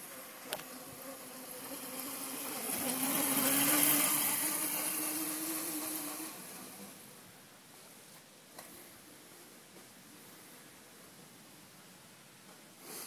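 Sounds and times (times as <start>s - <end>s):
electric mini bike humming past: 0.0s - 7.2s.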